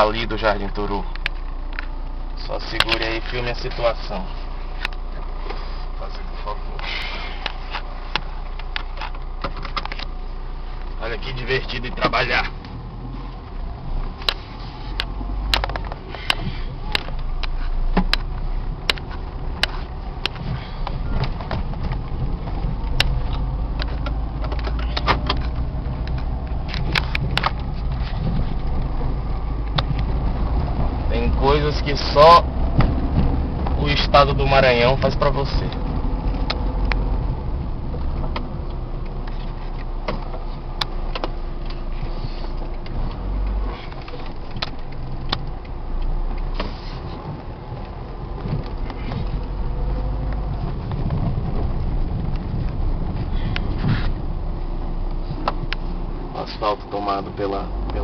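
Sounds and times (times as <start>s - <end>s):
car knocking and rattling over bumps: 0.0s - 58.0s
engine and tyres rumbling: 0.0s - 58.0s.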